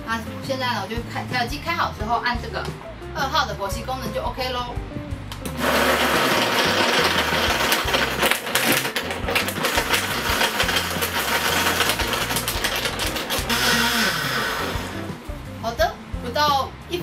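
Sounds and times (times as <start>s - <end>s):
ice clicking against blender jar: 5.6s - 15.0s
blender running at high speed: 5.6s - 15.1s.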